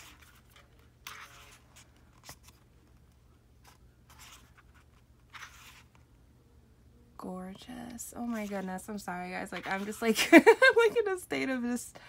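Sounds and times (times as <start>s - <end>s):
paper pages turning: 0.0s - 6.1s.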